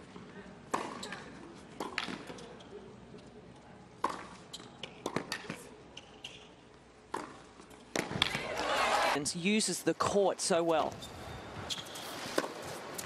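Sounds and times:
tennis ball struck by rackets: 0:00.7 - 0:01.1, 0:01.8 - 0:02.3, 0:04.0 - 0:05.6, 0:07.1 - 0:08.7, 0:12.3 - 0:12.7
shoe squeaks: 0:04.4 - 0:05.0, 0:05.9 - 0:06.6, 0:10.9 - 0:13.0.

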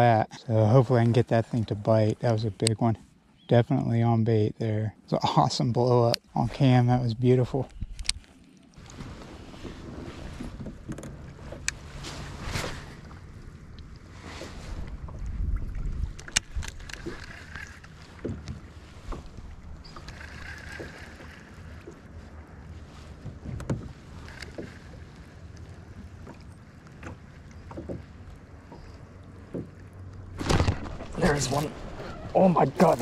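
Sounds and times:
water: 0:00.0 - 0:33.0
low wind noise: 0:06.4 - 0:33.0
knocks and taps on kayak: 0:27.0 - 0:28.1.

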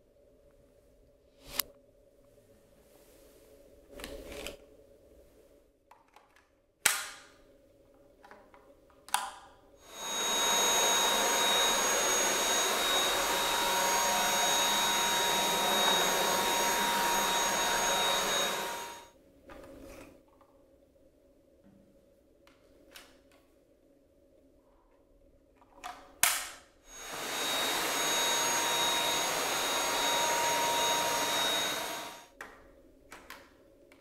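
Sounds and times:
cordless vacuum running: 0:09.8 - 0:19.1, 0:26.9 - 0:32.3.

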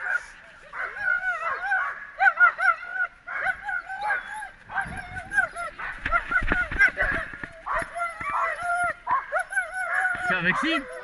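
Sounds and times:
dog whining and yelping: 0:00.8 - 0:11.0
rustling and knocks: 0:05.9 - 0:08.6.

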